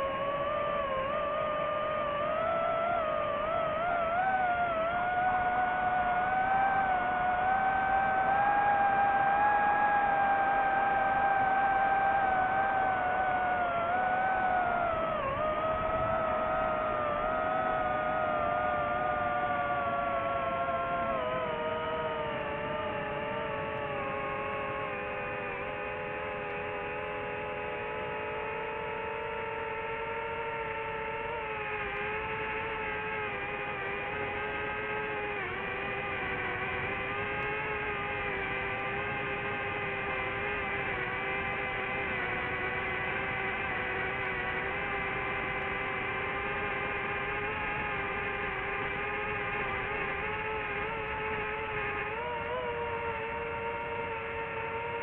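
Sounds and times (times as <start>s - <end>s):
drone motors whining: 0.0s - 55.0s.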